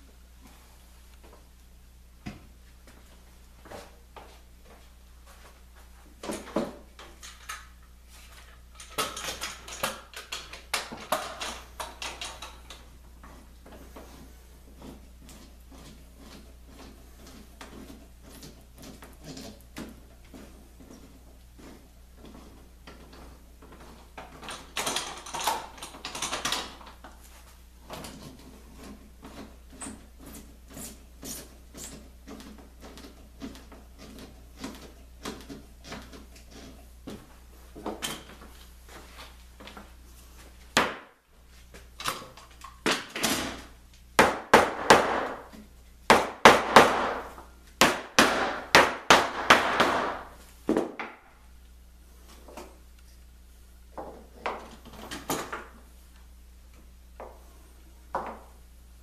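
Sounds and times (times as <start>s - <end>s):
clamps clicking and knocking: 6.2s - 13.4s, 22.3s - 27.1s.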